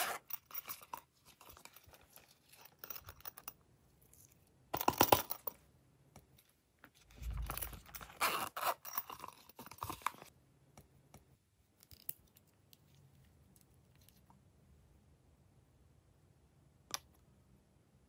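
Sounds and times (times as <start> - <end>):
zipper rasping and rustling: 0.0 - 3.0, 7.1 - 10.2.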